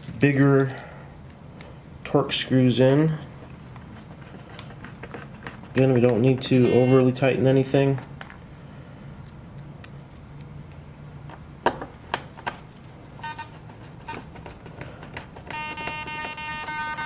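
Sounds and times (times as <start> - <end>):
brief buzzing tone: 15.5 - 17.0
steady high electronic buzz: 15.5 - 17.0.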